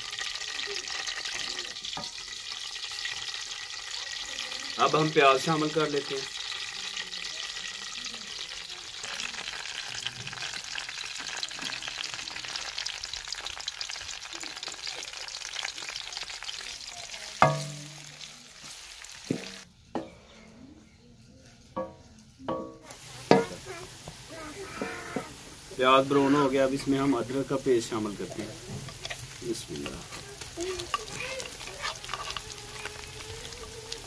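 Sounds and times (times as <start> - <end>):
onions sizzling in hot oil: 0.0 - 20.1, 21.5 - 34.0
metallic clang on pan: 17.4 - 18.1, 21.8 - 23.6.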